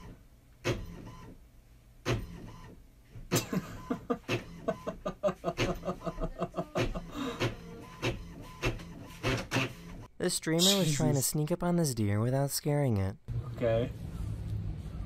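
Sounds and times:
man laughing hard: 0:03.3 - 0:07.4
inkjet printer running: 0:03.8 - 0:10.1.

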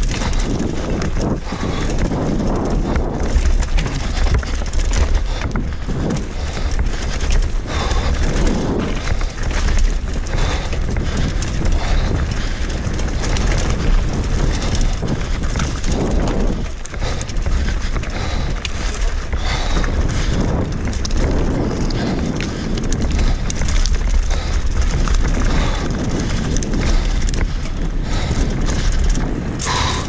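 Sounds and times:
bike rattling over rocks: 0:00.0 - 0:30.0
wind rumbling on microphone: 0:00.0 - 0:30.0.

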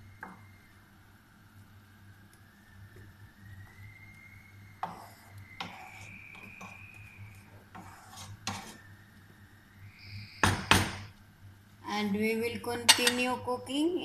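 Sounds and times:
faint steady high tone: 0:02.0 - 0:11.2
spatula scraping frying pan: 0:04.8 - 0:06.8, 0:07.7 - 0:08.8.

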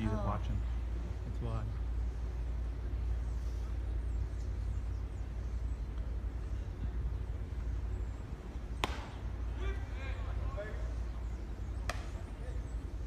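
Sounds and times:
steady low rumble: 0:00.0 - 0:13.0
voices: 0:00.0 - 0:13.0
ball hitting bat or mitt: 0:08.8 - 0:09.3, 0:11.8 - 0:12.3.

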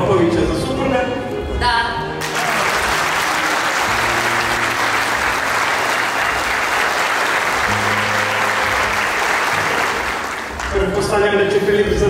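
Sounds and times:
guests applauding: 0:02.2 - 0:11.3.

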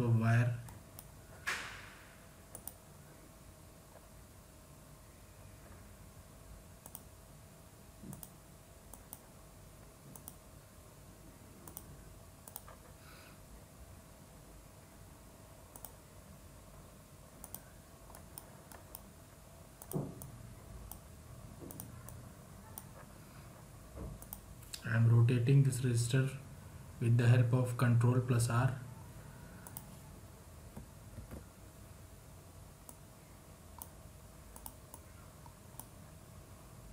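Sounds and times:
faint steady hum: 0:00.0 - 0:36.9
computer mouse clicks: 0:02.5 - 0:02.8, 0:06.8 - 0:07.1, 0:08.0 - 0:09.3, 0:10.1 - 0:10.4, 0:11.6 - 0:12.9, 0:15.7 - 0:16.0, 0:17.4 - 0:19.1, 0:19.8 - 0:20.3, 0:20.9 - 0:23.1, 0:24.2 - 0:24.8, 0:29.6 - 0:29.9, 0:32.8 - 0:33.0, 0:33.8 - 0:35.9.

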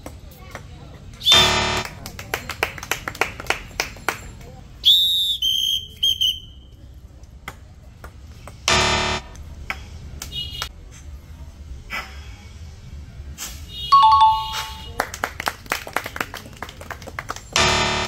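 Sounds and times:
buzzer blast: 0:01.4 - 0:02.0, 0:08.7 - 0:09.4, 0:17.6 - 0:18.0
loud high whistle: 0:04.8 - 0:06.6.

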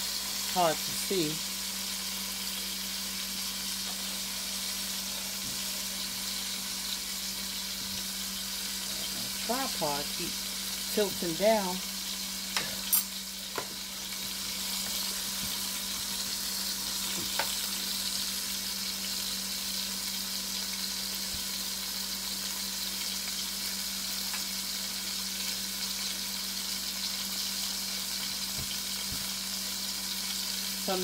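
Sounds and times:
meat sizzling in oil: 0:00.0 - 0:31.0.

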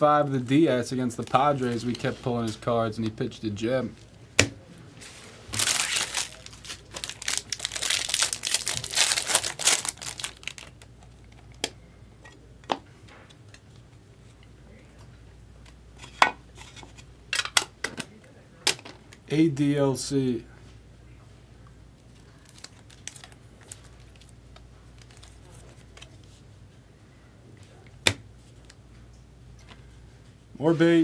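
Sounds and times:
foil wrapper tearing and crinkling: 0:05.5 - 0:10.8, 0:22.2 - 0:24.3.

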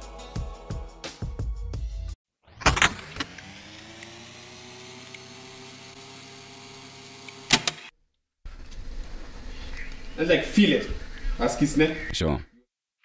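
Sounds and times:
machine hum spinning up: 0:02.5 - 0:07.5.

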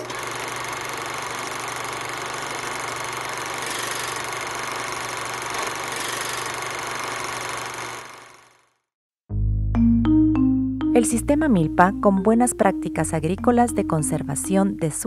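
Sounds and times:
small machine whirring: 0:00.0 - 0:08.8.

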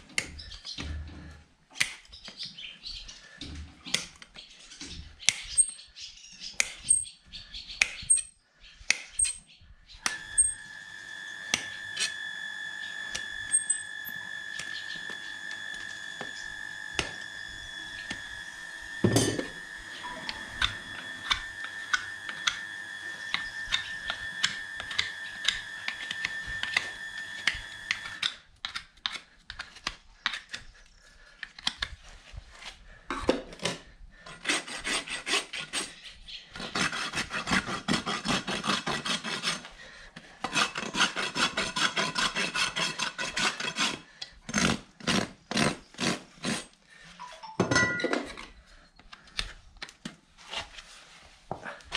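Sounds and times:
steady high whine: 0:10.1 - 0:28.2
hoof knife scraping clicks: 0:12.8 - 0:17.2, 0:23.2 - 0:30.7
rasp filing a hoof: 0:33.8 - 0:46.8.

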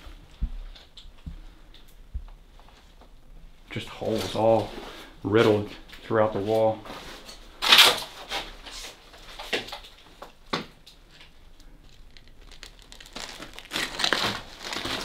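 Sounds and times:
debris crunching and crinkling: 0:03.7 - 0:08.5, 0:09.1 - 0:15.0.

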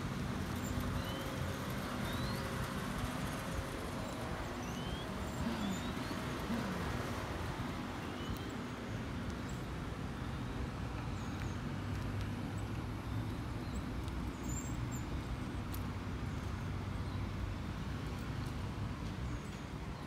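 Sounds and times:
bicycle rolling and wind noise: 0:00.0 - 0:20.0.

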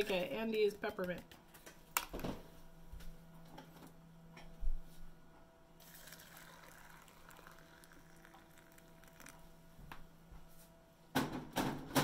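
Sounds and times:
low steady hum: 0:00.0 - 0:12.0
hot water pouring over tea leaves: 0:05.8 - 0:09.5.

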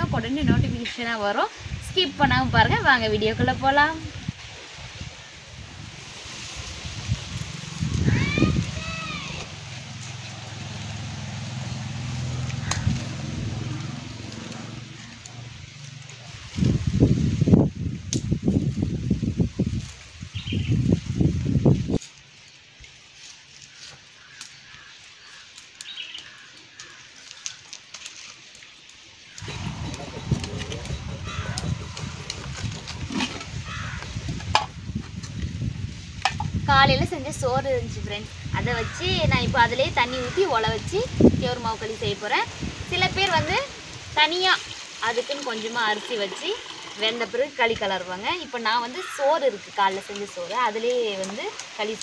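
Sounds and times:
wind rumbling on microphone: 0:00.0 - 0:22.0, 0:29.3 - 0:45.4
fire buffeting: 0:04.1 - 0:22.0, 0:29.2 - 0:45.3
low engine-like hum: 0:08.6 - 0:16.2, 0:29.4 - 0:33.6
birds chirping: 0:28.8 - 0:34.7.

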